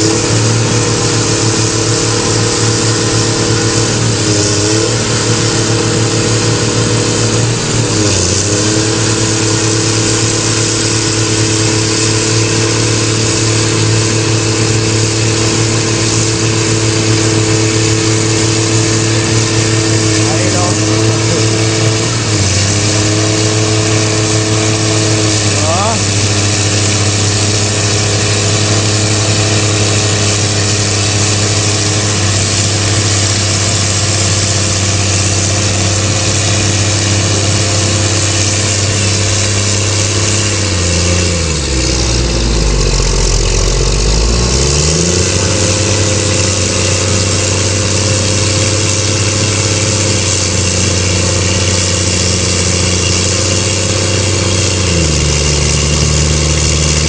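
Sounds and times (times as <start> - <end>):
tractor diesel engines running: 0.0 - 57.0.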